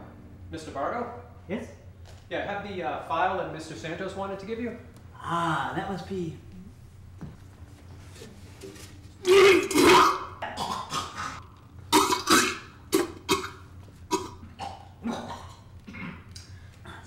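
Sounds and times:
man coughing and gagging: 0:09.3 - 0:16.3.

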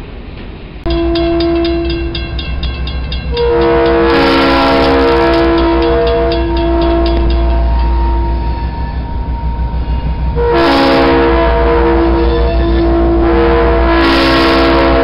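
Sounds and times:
low rumble of train: 0:00.0 - 0:15.0
grade-crossing bell ringing: 0:00.9 - 0:14.4
locomotive air horn chord: 0:00.9 - 0:15.0.

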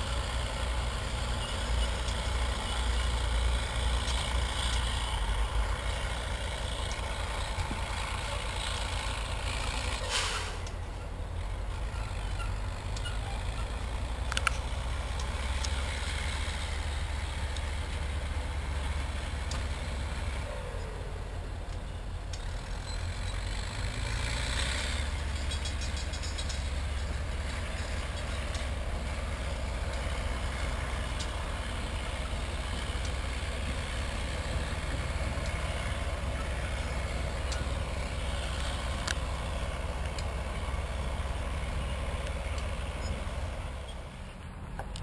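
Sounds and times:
locomotive engine rumbling: 0:00.0 - 0:45.0
hiss: 0:10.0 - 0:10.7.

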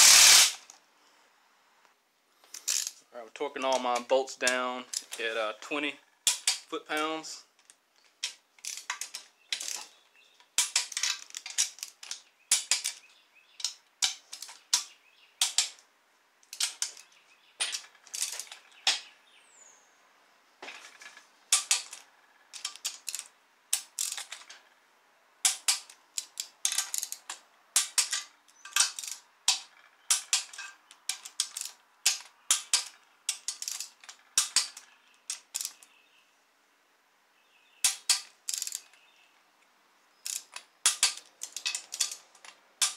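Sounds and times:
torque wrench ratcheting clicks: 0:22.6 - 0:24.5, 0:25.5 - 0:35.8, 0:37.8 - 0:38.9, 0:40.2 - 0:42.9.

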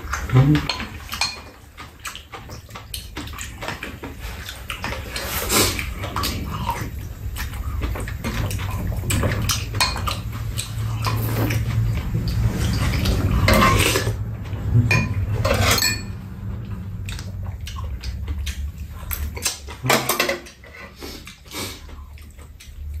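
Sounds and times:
utensils clinking on bowls: 0:00.0 - 0:01.9, 0:07.9 - 0:16.6, 0:19.1 - 0:21.0
low rumble: 0:06.0 - 0:19.4.

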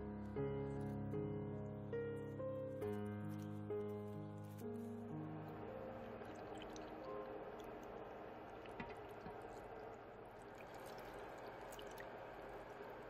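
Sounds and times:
liquid pouring into pot: 0:08.6 - 0:13.0.

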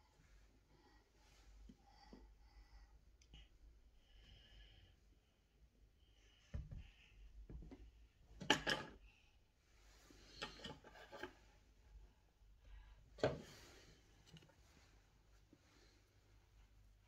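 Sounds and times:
small clicks and rustles: 0:14.1 - 0:14.9.

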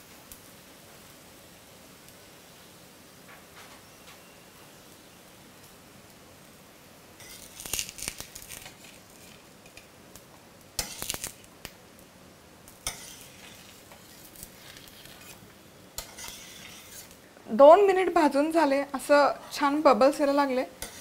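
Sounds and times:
flatbread sizzling in oil: 0:00.0 - 0:21.0
metal spatula scraping metal pan: 0:07.2 - 0:07.6, 0:10.8 - 0:11.2, 0:12.8 - 0:15.4, 0:16.0 - 0:17.2, 0:20.8 - 0:21.0.

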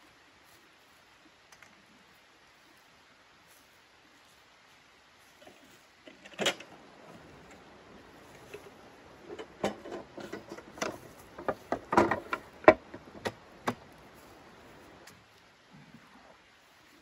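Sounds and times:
metal frame knocks and clatter: 0:09.2 - 0:13.8.

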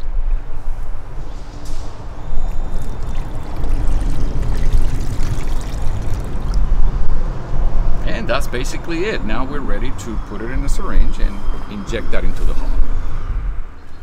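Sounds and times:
liquid trickling through strainer: 0:02.4 - 0:06.7.

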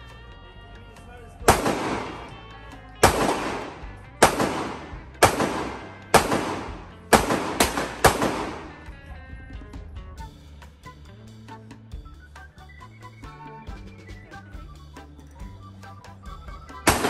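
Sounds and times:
echoing handgun shots: 0:01.5 - 0:02.3, 0:03.0 - 0:08.8.

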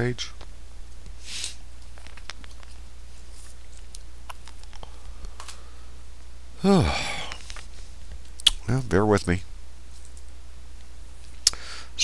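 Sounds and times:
steady low hum: 0:00.0 - 0:12.0
man coughing: 0:06.6 - 0:07.3.

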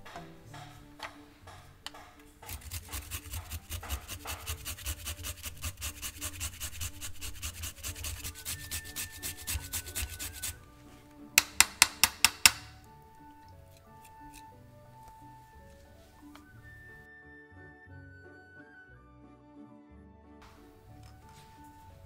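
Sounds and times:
ginger scraped on metal grater: 0:02.4 - 0:10.6, 0:13.7 - 0:14.5
sharp loud taps: 0:11.4 - 0:12.8.

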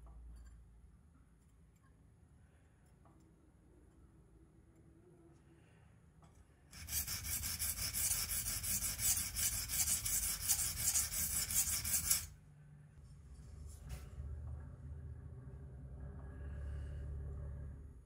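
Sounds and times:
knife scraping on whetstone: 0:06.8 - 0:12.3.

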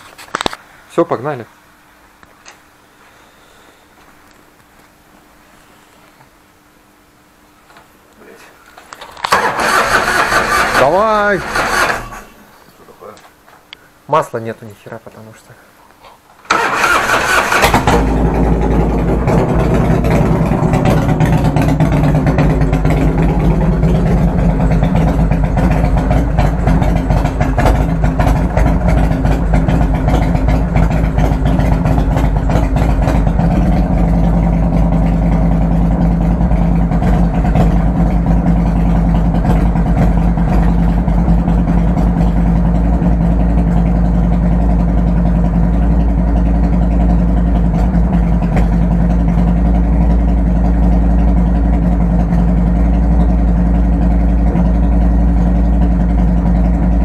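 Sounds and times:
motorcycle engine idling: 0:16.5 - 0:57.0.

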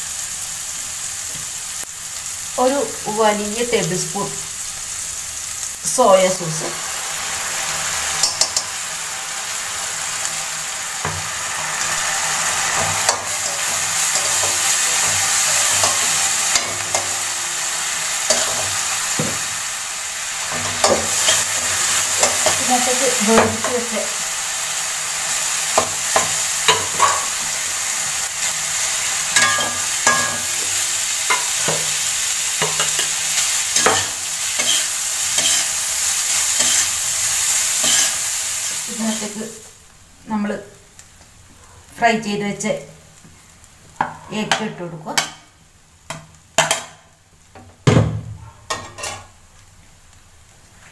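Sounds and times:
food sizzling in hot oil: 0:00.0 - 0:50.9
metal spatula scraping pan: 0:32.6 - 0:37.0, 0:37.7 - 0:38.2, 0:48.7 - 0:49.3.

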